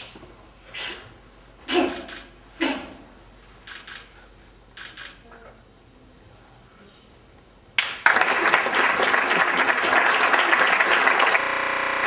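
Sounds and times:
audience applause: 7.8s - 12.0s.

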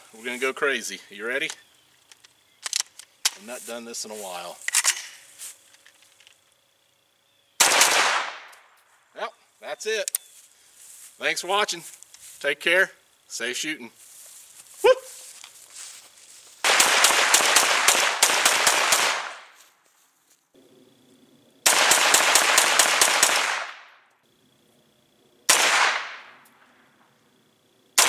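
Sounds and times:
pistol shots echoing: 7.6s - 8.5s, 16.6s - 19.5s, 21.7s - 23.8s, 25.5s - 26.3s.

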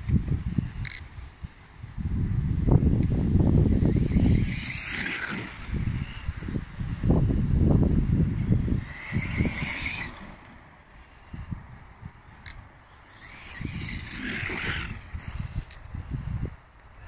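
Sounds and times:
wind rumbling on microphone: 0.0s - 17.0s
electric motor whining: 2.5s - 11.2s, 12.0s - 17.0s.

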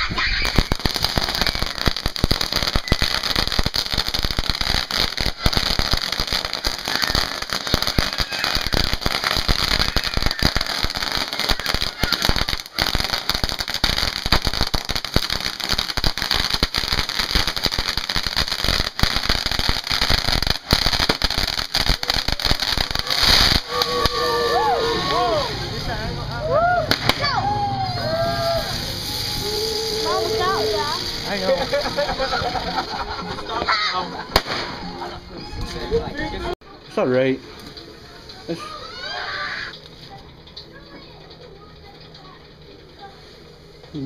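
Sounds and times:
firecrackers popping rapidly: 0.0s - 35.1s.

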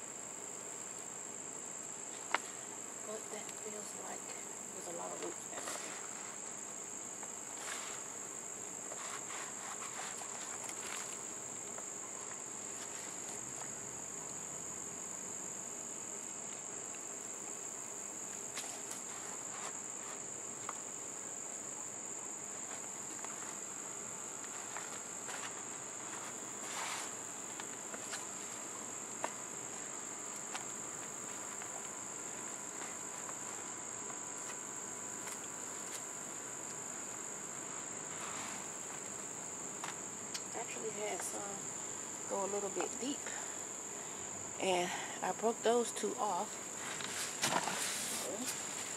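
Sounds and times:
crickets trilling: 0.0s - 48.9s
hands digging through potting soil: 46.8s - 48.9s.

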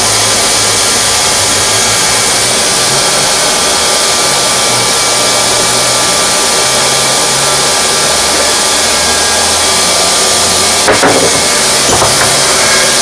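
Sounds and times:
hot-air gun blowing: 0.0s - 13.0s
brief knock: 10.9s - 12.4s.

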